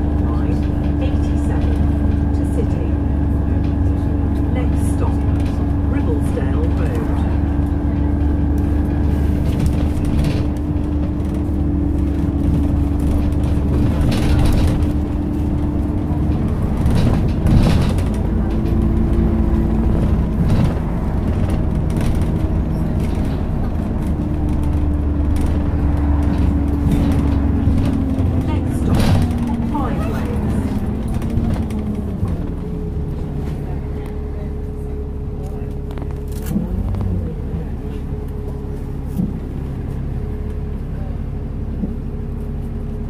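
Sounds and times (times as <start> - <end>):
bus engine and road rumble: 0.0 - 43.0
drivetrain whine: 0.0 - 43.0
body knocks and rattles: 7.2 - 33.6.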